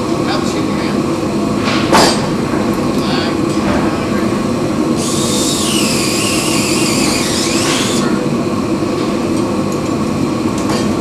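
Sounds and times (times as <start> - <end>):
machinery drone: 0.0 - 9.2
power drill whining: 5.0 - 8.1.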